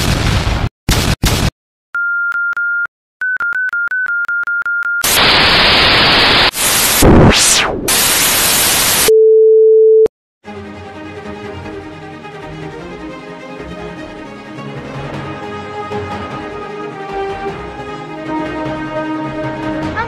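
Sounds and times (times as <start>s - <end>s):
loud static hiss: 5.0s - 9.1s
short electronic beeps: 9.0s - 10.1s.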